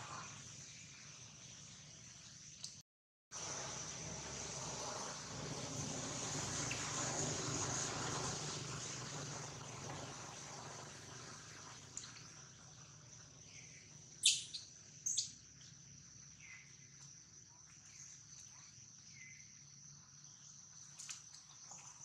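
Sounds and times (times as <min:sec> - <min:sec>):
insects droning: 0:03.4 - 0:22.0
faint short chirps: 0:14.2 - 0:15.3.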